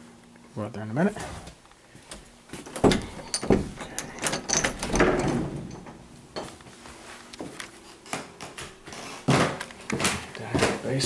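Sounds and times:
footsteps on wooden stairs: 1.5s - 3.8s, 7.4s - 10.9s
door opening with knocks and clicks: 2.6s - 6.6s.

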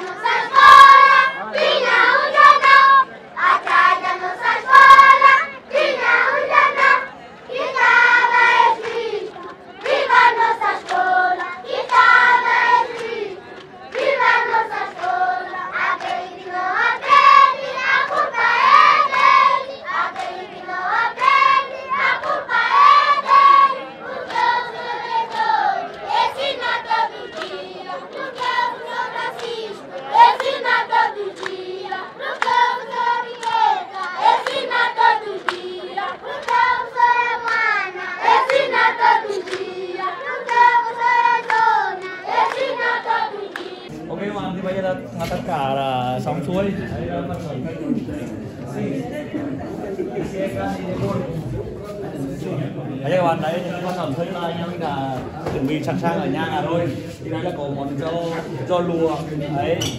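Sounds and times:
children singing in unison: 0.0s - 43.9s.

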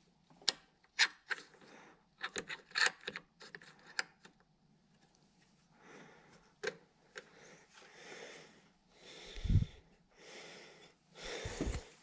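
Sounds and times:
person breathing close to microphone: 5.7s - 12.0s
breath blowing on microphone: 9.2s - 9.8s.

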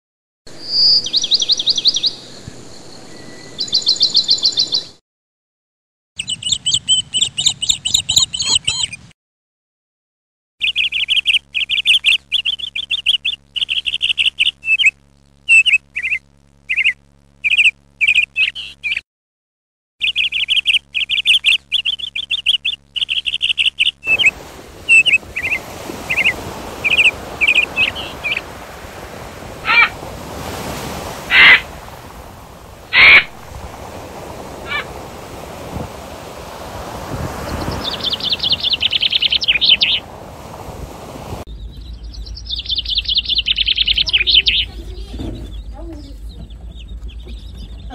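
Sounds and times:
lovebird chirping: 0.6s - 5.0s, 6.2s - 9.1s, 10.6s - 19.0s, 20.0s - 28.5s, 37.4s - 40.0s, 41.5s - 47.9s
loud bird calls: 10.6s - 19.0s, 20.0s - 40.1s, 41.5s - 47.9s
surf on a beach: 24.1s - 41.5s, 43.0s - 46.0s.

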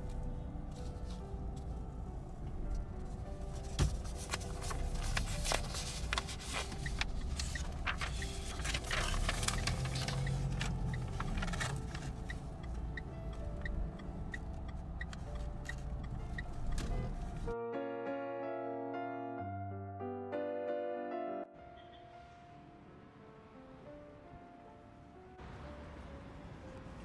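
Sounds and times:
paper rustling: 3.5s - 12.2s
even ticking: 9.4s - 17.4s.

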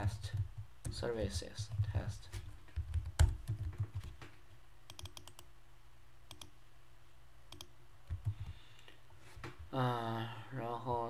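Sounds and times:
keyboard keystrokes and clicks: 2.7s - 4.3s, 4.9s - 5.5s, 6.3s - 6.5s, 7.5s - 8.5s.

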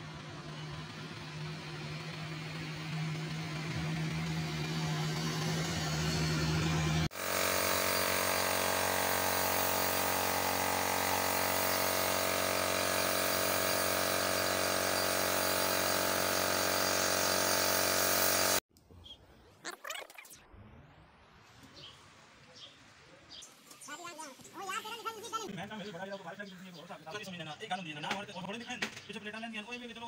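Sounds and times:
air compressor humming: 7.0s - 18.6s
paint spray gun hissing: 7.1s - 18.6s.

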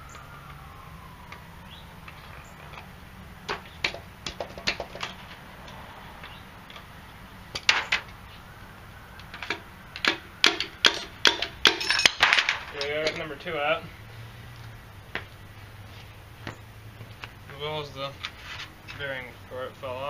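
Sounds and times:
sharp metallic knocks: 3.5s - 5.4s, 9.3s - 13.3s.

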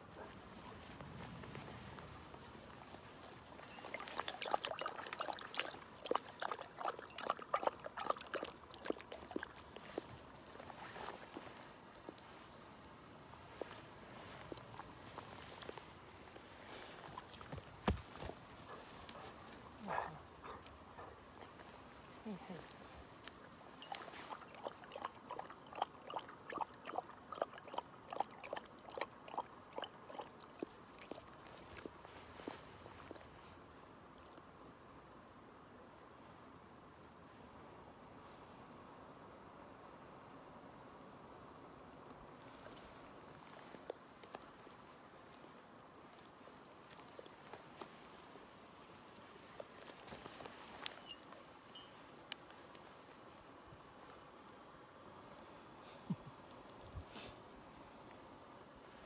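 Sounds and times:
dog lapping water: 3.7s - 10.1s, 23.8s - 31.9s.

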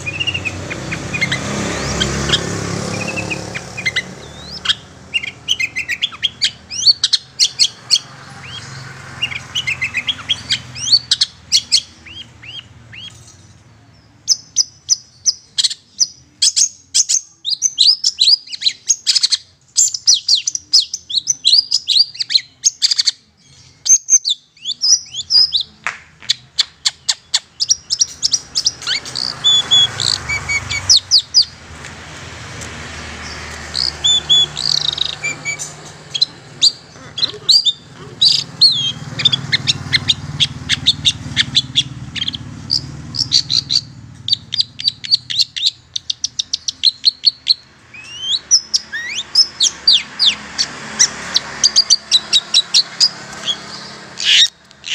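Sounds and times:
bird scratchy chattering song: 0.0s - 54.9s.

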